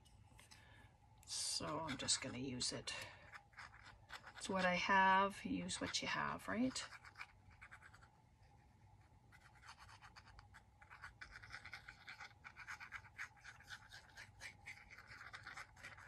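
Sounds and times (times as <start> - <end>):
glue bottle scratching and clicking: 1.7 - 2.4, 3.3 - 4.8, 6.7 - 8.1, 9.3 - 16.0.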